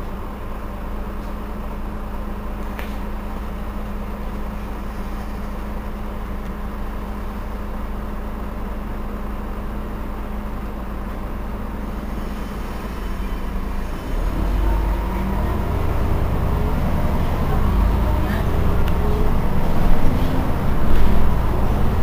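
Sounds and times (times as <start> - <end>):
bus diesel engine idling: 0.0 - 22.0.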